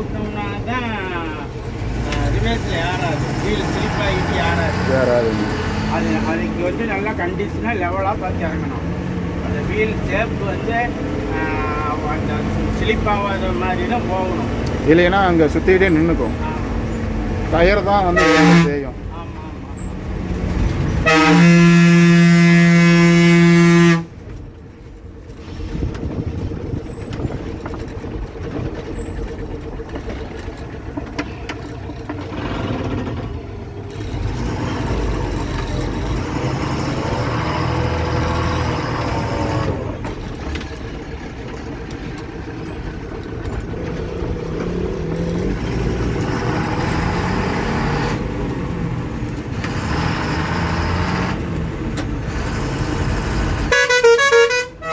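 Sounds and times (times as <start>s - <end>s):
diesel engine under load: 0.0s - 54.9s
road and cab rattle: 0.0s - 54.9s
bus horn honking: 18.0s - 19.0s, 20.9s - 24.2s, 53.6s - 54.9s.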